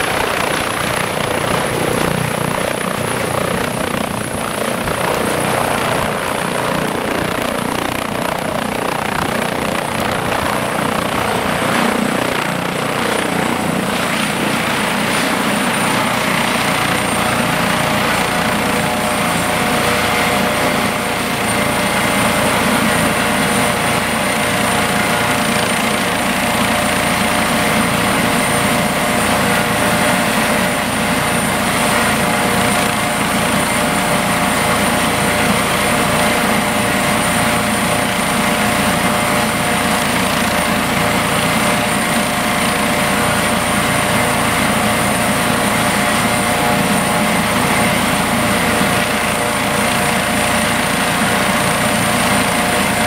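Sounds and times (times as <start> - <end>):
helicopter rotor noise: 0.0 - 53.0
helicopter turbine whine: 0.0 - 53.0.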